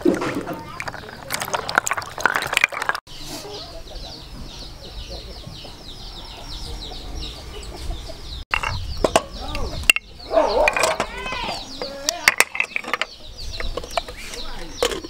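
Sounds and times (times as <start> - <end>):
water sloshing in plastic basin: 0.0 - 3.0
birds chirping: 0.0 - 15.0.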